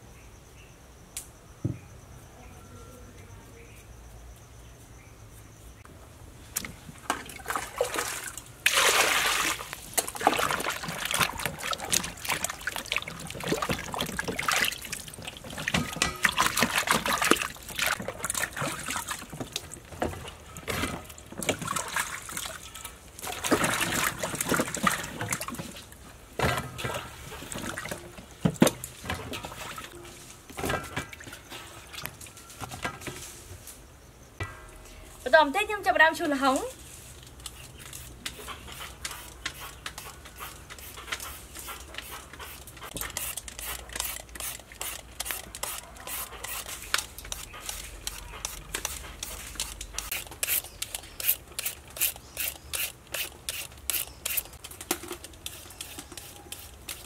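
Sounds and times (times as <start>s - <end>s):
water splashing in a metal basin: 6.6s - 30.0s.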